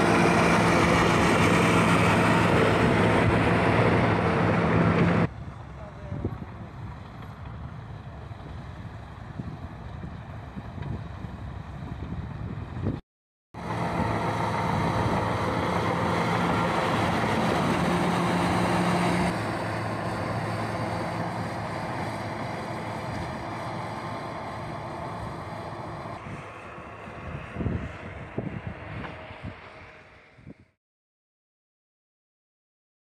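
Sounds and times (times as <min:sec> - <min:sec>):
snow blower engine running: 0:00.0 - 0:08.7, 0:13.6 - 0:27.2
wind-like rushing: 0:13.6 - 0:30.8.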